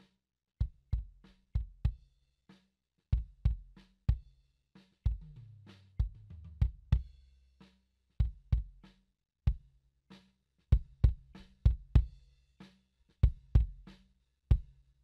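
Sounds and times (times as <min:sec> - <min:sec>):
kick drum thumps: 0:10.7 - 0:12.1, 0:13.2 - 0:13.8.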